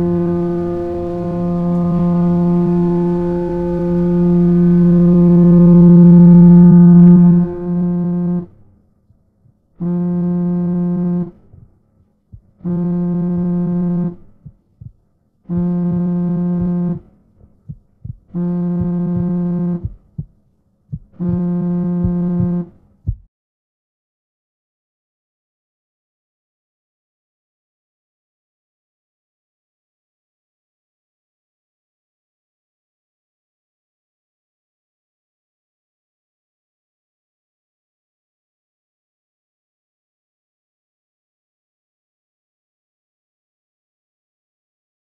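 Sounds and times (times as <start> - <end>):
low buzzing tone: 0.0 - 23.3.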